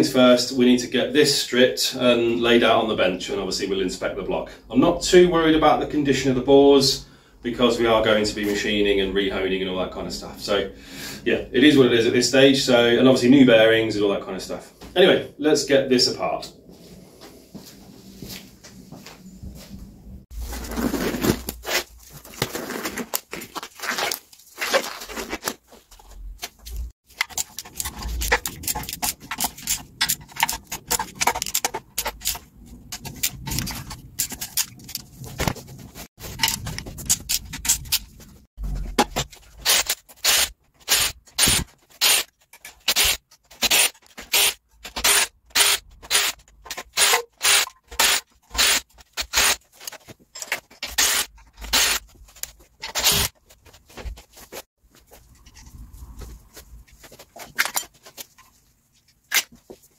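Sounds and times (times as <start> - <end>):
scraping and clicking: 25.4 - 40.9.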